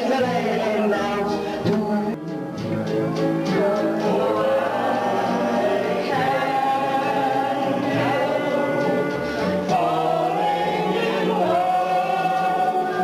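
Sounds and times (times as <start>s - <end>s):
man singing into microphone: 0.0s - 2.4s, 9.8s - 13.0s
backing music: 0.0s - 13.0s.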